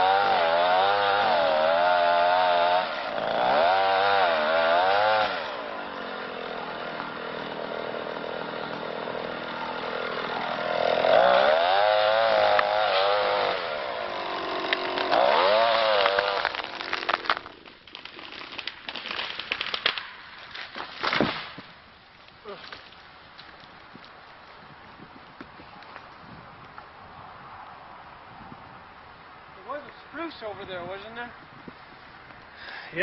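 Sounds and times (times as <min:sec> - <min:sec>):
chainsaw cutting wood: 0:00.0 - 0:21.7
tree cracking and falling: 0:06.3 - 0:24.7.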